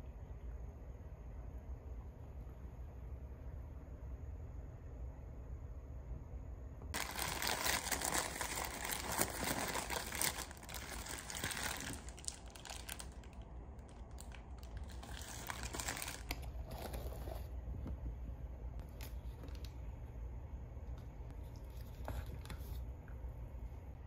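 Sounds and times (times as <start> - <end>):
paper wrappers rustling: 7.0 - 17.4.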